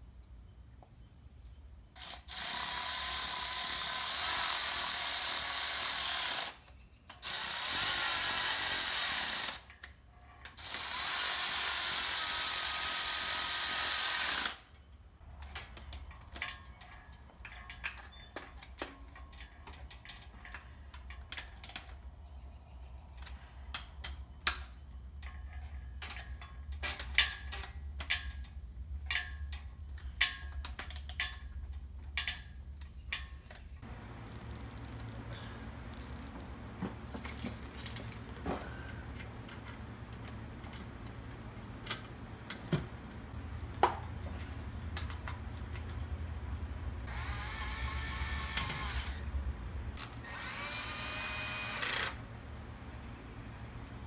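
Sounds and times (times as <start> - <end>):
cordless ratchet running: 2.0 - 6.6, 7.2 - 9.7, 10.6 - 14.6, 50.2 - 52.2
ratchet and bolts clicking: 2.0 - 22.0.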